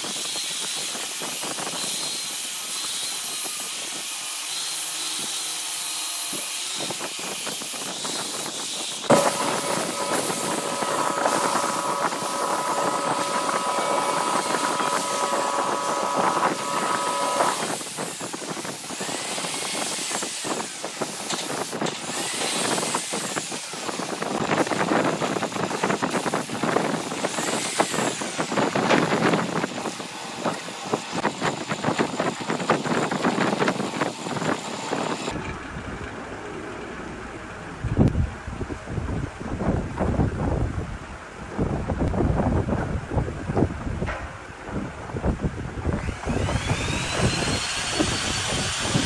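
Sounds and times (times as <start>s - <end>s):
sandpaper hissing on spinning wood: 0.0s - 35.4s
lathe motor whine: 9.1s - 18.0s, 27.2s - 35.6s, 46.0s - 49.0s.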